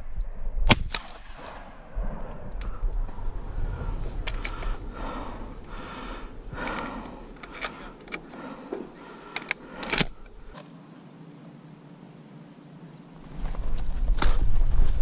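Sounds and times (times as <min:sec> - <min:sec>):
low rumble: 0:00.0 - 0:08.1
breathy rustling: 0:02.4 - 0:10.6
sharp clicks: 0:04.1 - 0:10.7.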